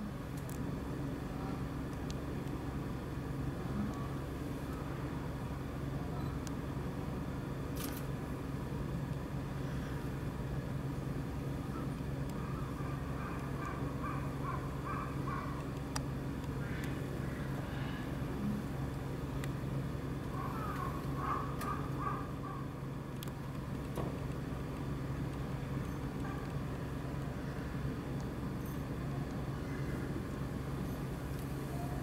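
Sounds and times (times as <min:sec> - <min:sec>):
low background hum: 0:00.0 - 0:32.0
faint clicks: 0:15.5 - 0:17.6, 0:23.1 - 0:27.4.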